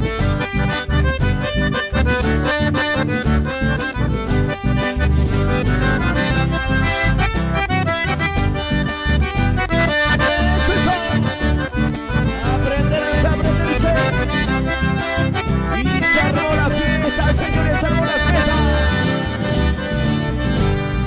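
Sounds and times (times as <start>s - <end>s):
electric bass: 0.0s - 21.0s
piano accordion melody: 0.0s - 21.0s.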